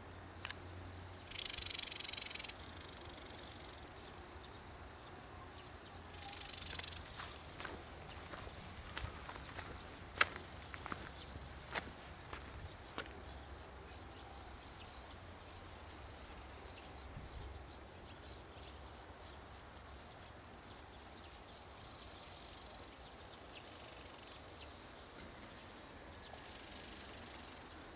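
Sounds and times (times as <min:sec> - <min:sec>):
faint ticks: 0:00.4 - 0:03.4, 0:06.2 - 0:13.2
high-pitched insect drone: 0:01.2 - 0:04.0, 0:06.0 - 0:11.1.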